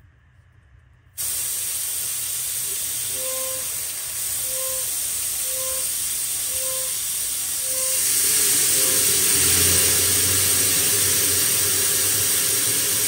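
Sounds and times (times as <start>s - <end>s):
compressed air hissing from valve: 1.2s - 13.0s
faint short beeps: 3.0s - 8.0s.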